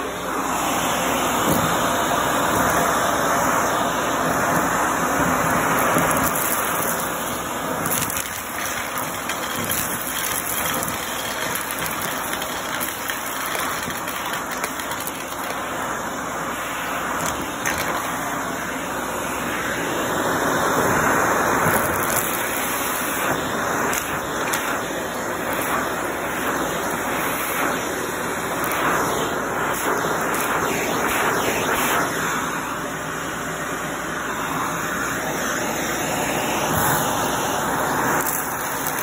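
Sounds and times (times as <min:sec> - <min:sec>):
handheld vacuum running: 0:00.0 - 0:39.0
debris rattling into vacuum: 0:07.8 - 0:15.6.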